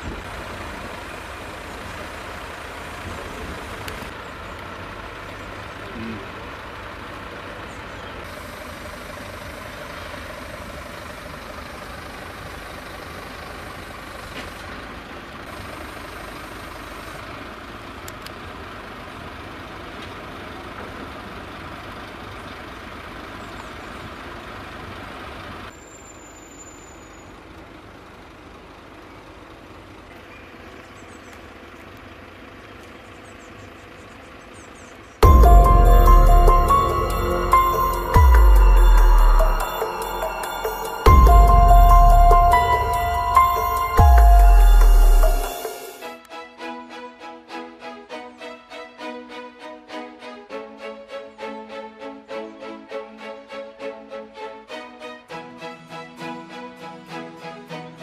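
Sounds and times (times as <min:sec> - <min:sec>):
truck engine idling: 0:00.0 - 0:46.1
quiet outdoor background: 0:00.0 - 0:58.0
music: 0:35.2 - 0:58.0.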